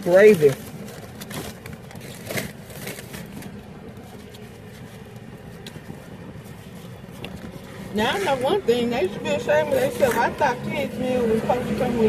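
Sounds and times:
packaging rustling: 0:00.0 - 0:07.9
eating and crunching: 0:00.0 - 0:12.0
low hum inside car: 0:00.0 - 0:12.0.

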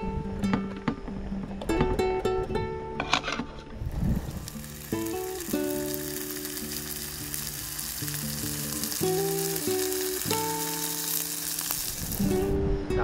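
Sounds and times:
slow background music: 0:00.0 - 0:13.0
food sizzling in a pan: 0:04.0 - 0:12.5.

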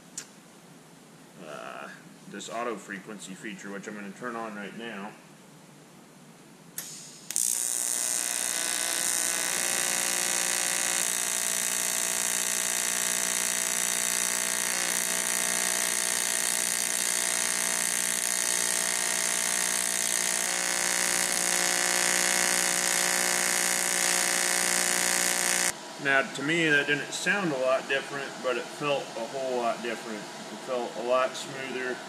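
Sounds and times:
welding arc buzzing and hissing: 0:06.8 - 0:25.8.

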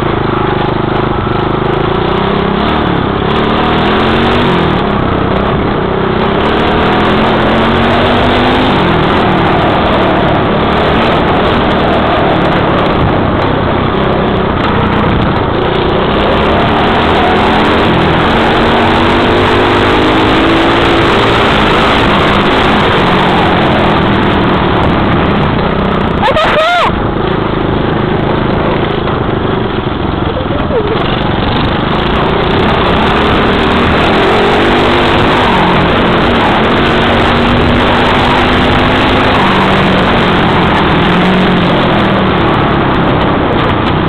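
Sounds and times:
dirt bike engine revving: 0:00.0 - 0:44.0.

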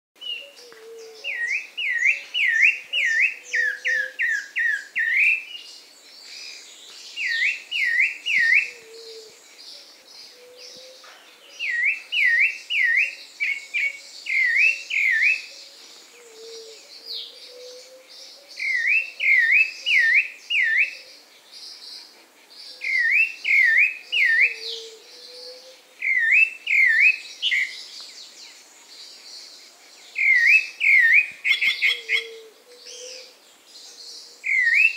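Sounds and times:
thrush singing whistled notes: 0:01.2 - 0:05.6, 0:06.5 - 0:09.4, 0:11.6 - 0:15.7, 0:17.2 - 0:21.1, 0:22.7 - 0:28.4, 0:29.1 - 0:33.3, 0:34.3 - 0:34.9.

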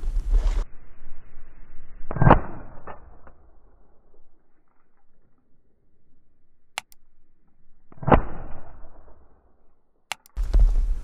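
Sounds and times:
sharp click: 0:06.8 - 0:07.0, 0:10.1 - 0:10.4.

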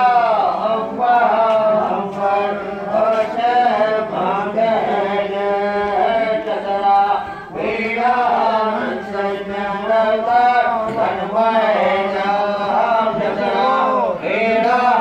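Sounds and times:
droning chant: 0:00.0 - 0:15.0.

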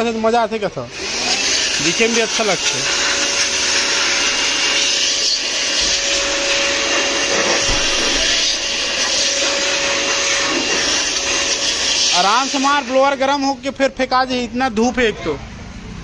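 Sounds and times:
air blower rushing hiss: 0:00.9 - 0:13.6
fan motor whine: 0:01.0 - 0:13.0.

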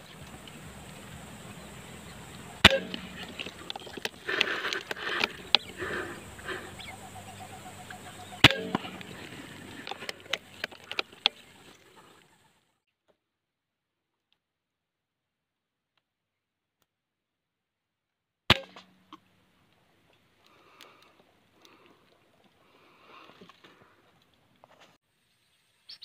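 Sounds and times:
sharp clicks: 0:00.0 - 0:11.5
air rifle shots: 0:00.1 - 0:11.4.

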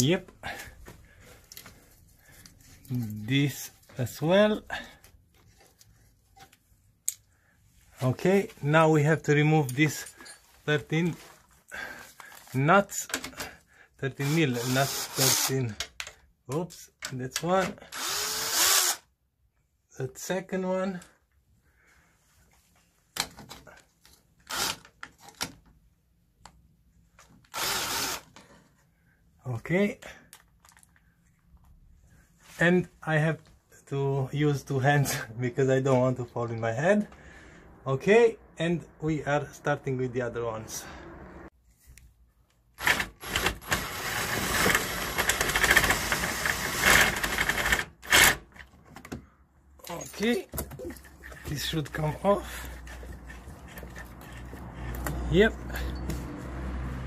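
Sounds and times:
drill spinning nuts off: 0:17.9 - 0:19.0, 0:24.5 - 0:24.8, 0:27.5 - 0:28.3, 0:42.8 - 0:48.4.

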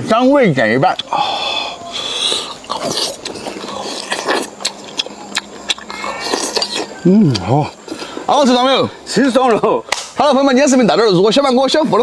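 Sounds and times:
chewing: 0:01.9 - 0:08.3.

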